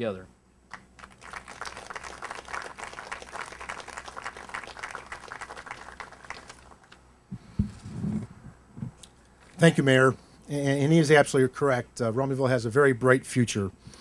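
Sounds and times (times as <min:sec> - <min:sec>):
crowd applauding: 0:00.7 - 0:07.0.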